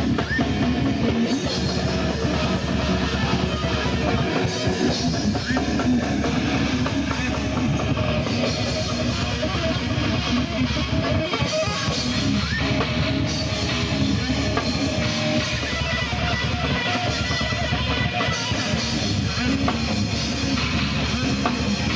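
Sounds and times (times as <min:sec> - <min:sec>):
electric guitar: 0:00.0 - 0:21.9
live rock band playing: 0:00.0 - 0:21.9.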